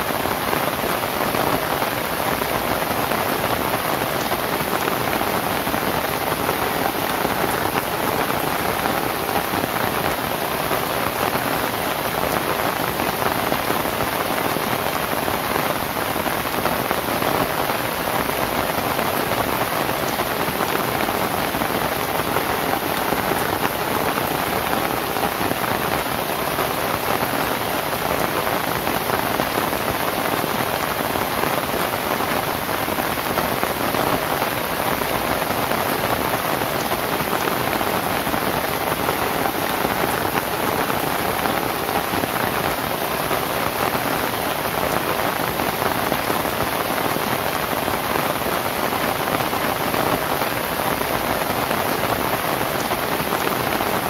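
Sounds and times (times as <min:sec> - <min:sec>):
heavy rain on thatched roof: 0:00.0 - 0:54.0.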